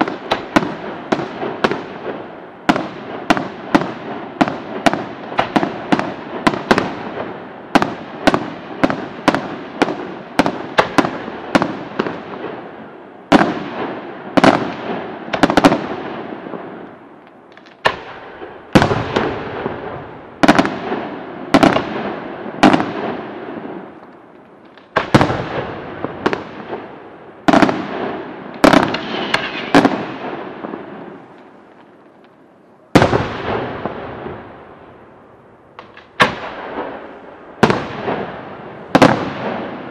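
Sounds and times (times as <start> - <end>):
firework shells bursting with echo: 13.3 - 32.4.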